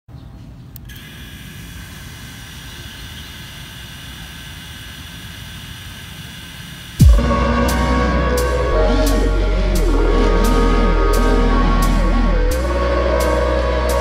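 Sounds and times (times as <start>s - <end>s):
click: 0.7s - 1.1s
high electric motor whine: 0.9s - 13.6s.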